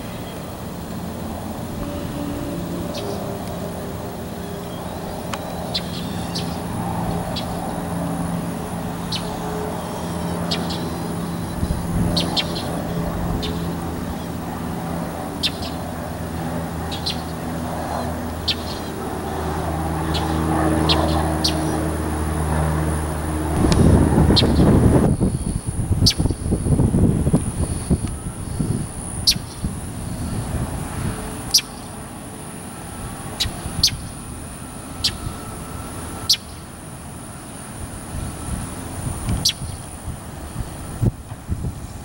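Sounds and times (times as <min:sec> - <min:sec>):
airplane propeller drone: 0:00.0 - 0:42.0
birds chirping: 0:01.6 - 0:22.0.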